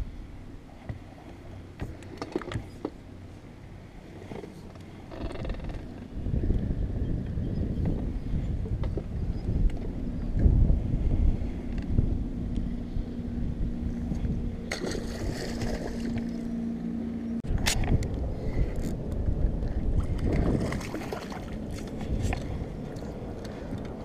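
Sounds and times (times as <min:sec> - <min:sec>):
wind rumble on microphone: 0:00.0 - 0:24.0.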